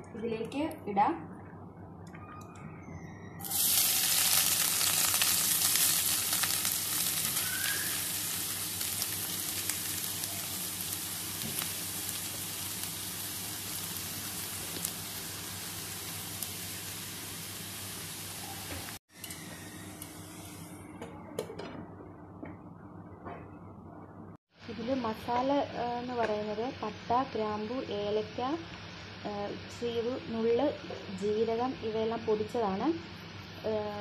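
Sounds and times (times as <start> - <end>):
vegetables sizzling in hot oil: 3.4 - 20.7.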